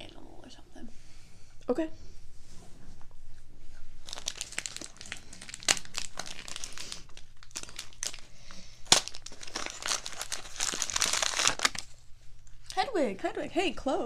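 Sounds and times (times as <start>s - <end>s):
wrapping paper crinkling and tearing: 4.0s - 12.0s
sharp paper snaps: 8.8s - 9.4s.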